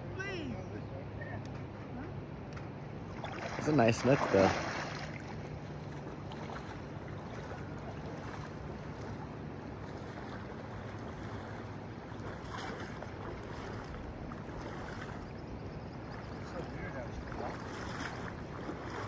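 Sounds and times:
river water rushing: 0:03.0 - 0:15.2.

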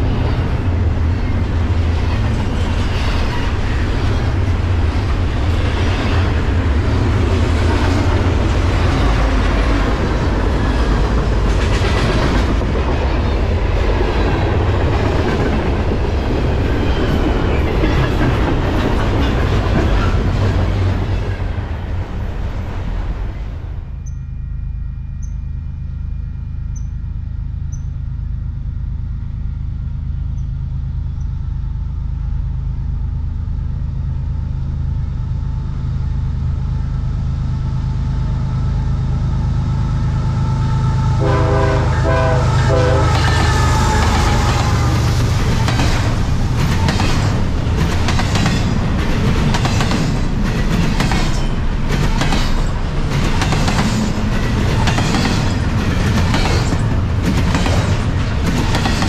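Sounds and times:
diesel locomotive engines droning: 0:00.0 - 0:59.0
train horn blast: 0:40.1 - 0:45.4
wheels clattering over rail joints: 0:43.1 - 0:59.0.

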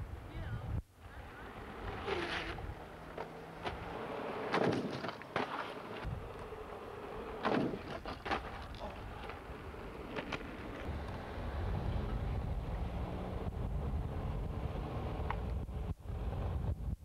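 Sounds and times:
skateboard clacking on asphalt: 0:01.4 - 0:11.4.

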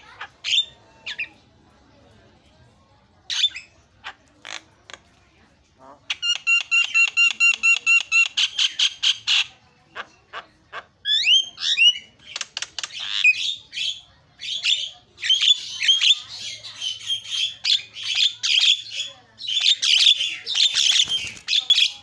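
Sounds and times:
bird singing varied song: 0:06.1 - 0:10.4, 0:11.0 - 0:22.0.

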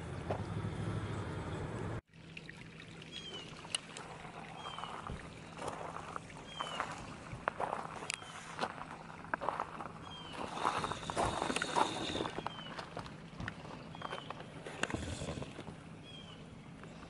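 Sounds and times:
faint footsteps: 0:04.0 - 0:15.8.

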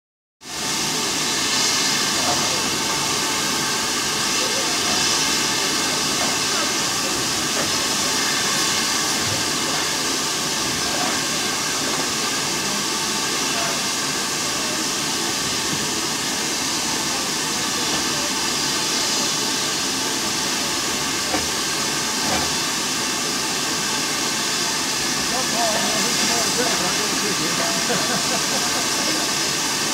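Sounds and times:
steam locomotive hissing steam: 0:00.4 - 0:29.9.

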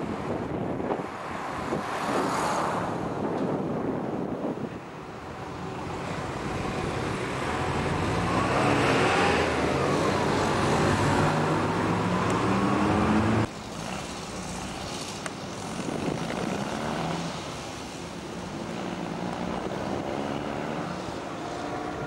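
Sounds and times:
road traffic: 0:00.0 - 0:22.0
vehicle engine passing: 0:05.6 - 0:22.0.

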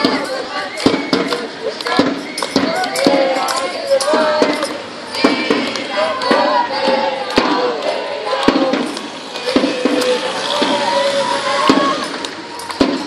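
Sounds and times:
group singing and calling out: 0:00.0 - 0:13.0.

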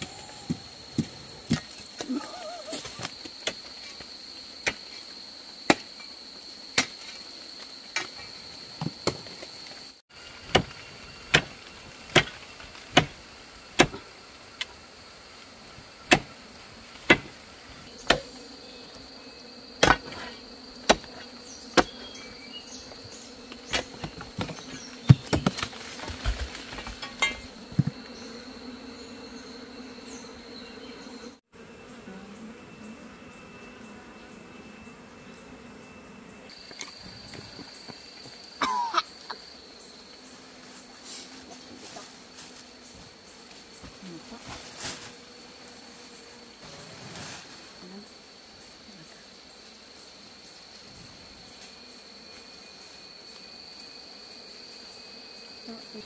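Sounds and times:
high-pitched insect drone: 0:00.0 - 0:08.7.

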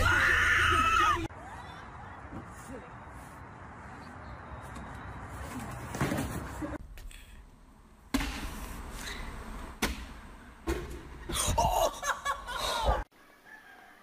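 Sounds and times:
sharp smack: 0:08.1 - 0:08.6, 0:09.8 - 0:10.1
people laughing: 0:11.4 - 0:13.0.

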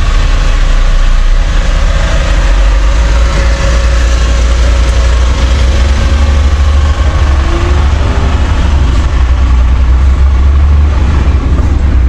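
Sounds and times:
truck diesel engine rumbling: 0:00.0 - 0:12.0.

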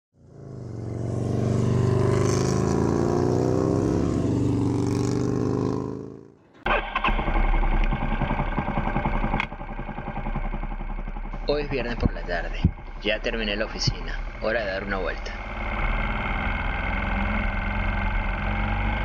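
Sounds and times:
motorcycle engine low rumble: 0:00.2 - 0:19.0
motorcycle engine pitch drifting: 0:00.2 - 0:19.0.

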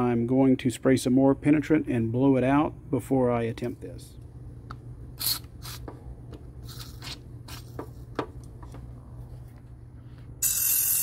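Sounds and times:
aerosol spray hissing: 0:10.4 - 0:11.0.

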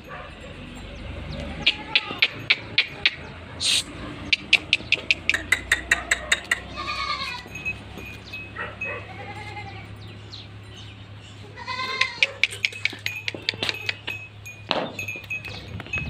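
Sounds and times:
goat bleating: 0:01.3 - 0:03.0, 0:03.7 - 0:08.0, 0:08.6 - 0:10.1, 0:11.4 - 0:14.2
sharp clicks: 0:04.3 - 0:06.7.

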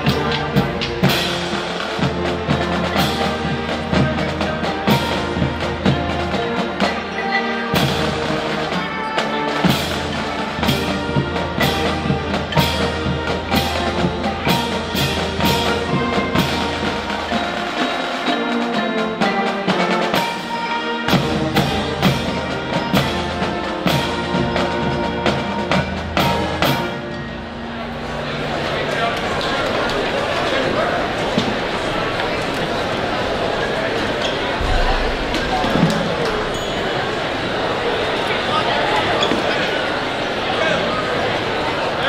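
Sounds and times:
steady percussion beat: 0:00.0 - 0:27.2, 0:34.6 - 0:37.6
music with drums: 0:00.0 - 0:28.2, 0:34.6 - 0:37.3
sustained instrument tones: 0:34.6 - 0:37.9.

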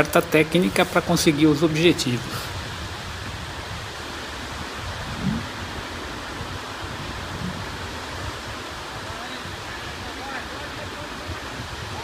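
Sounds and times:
surf breaking on beach: 0:00.0 - 0:12.0.

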